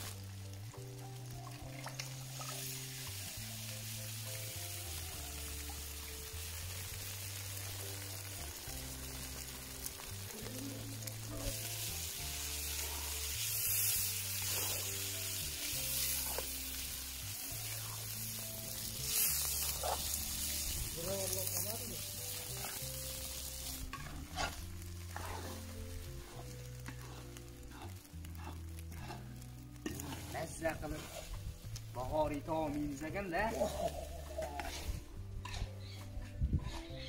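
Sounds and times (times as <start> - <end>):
background music with bass: 0.0 - 37.0
eggs sizzling in a pan: 0.0 - 37.0
metal spoon scraping a pan: 21.4 - 31.4, 33.5 - 37.0.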